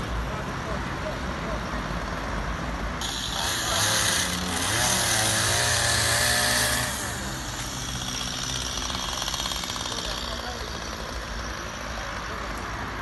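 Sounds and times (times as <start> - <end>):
chainsaw engine revving: 3.0 - 11.2.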